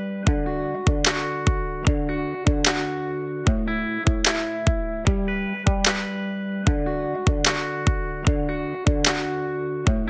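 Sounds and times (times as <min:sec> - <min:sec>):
background music with held chords: 0:00.0 - 0:10.0.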